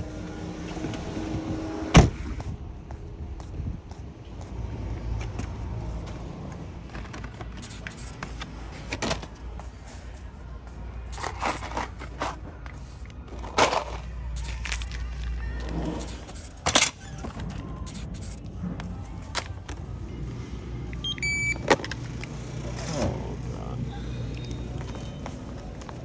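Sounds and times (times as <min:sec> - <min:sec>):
short scanner beep: 0:21.0 - 0:21.6.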